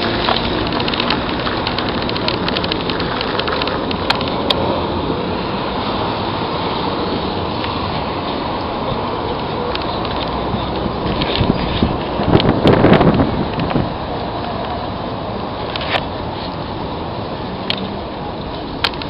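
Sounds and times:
small crackling ticks: 0.0s - 4.6s
bicycle tyres on gravel: 0.0s - 14.5s.

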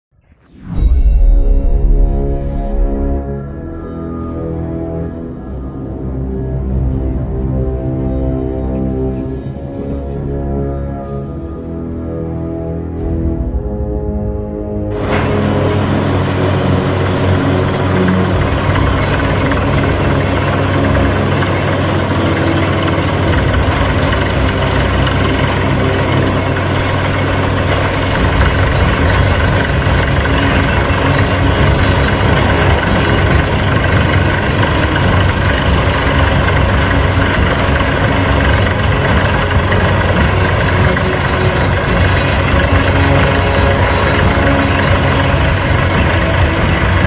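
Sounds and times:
drilling rig droning: 14.9s - 47.0s.

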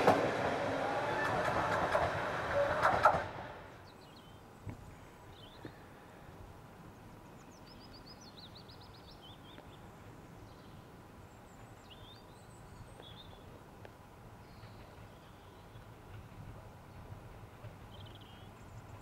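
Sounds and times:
distant diesel locomotive rumble: 0.0s - 4.2s, 9.8s - 19.0s.

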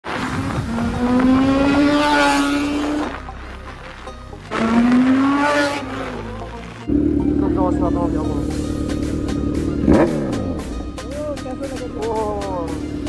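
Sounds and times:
wind rush: 0.1s - 2.2s
motorcycle engine accelerating: 0.3s - 3.2s, 4.5s - 13.0s.

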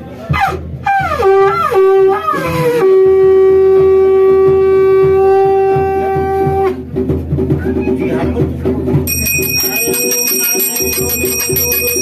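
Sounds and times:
conch shell blown: 0.8s - 6.8s.

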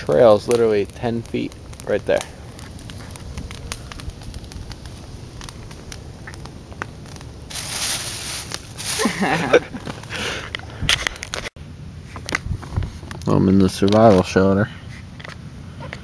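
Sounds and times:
campfire crackling and popping: 0.0s - 16.0s
rustling bursts: 7.5s - 10.2s.

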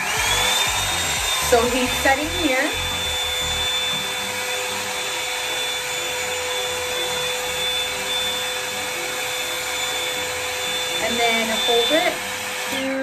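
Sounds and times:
hot-air brush blowing: 0.0s - 13.0s.

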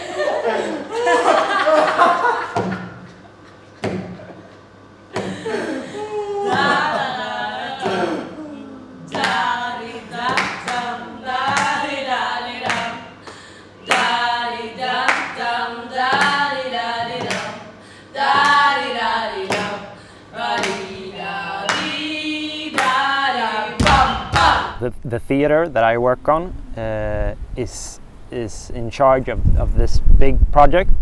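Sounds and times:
group singing together: 5.2s - 24.8s.

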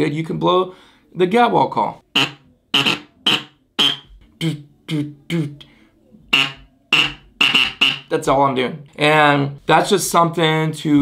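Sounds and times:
duck call short notes: 2.1s - 4.6s, 6.3s - 8.1s.

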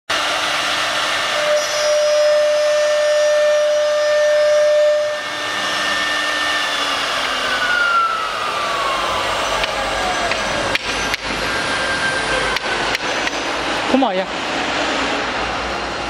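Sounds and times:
router spindle whine: 0.1s - 16.0s
router bit rasping wood: 0.2s - 13.5s
falling pitch tone: 1.2s - 13.8s.

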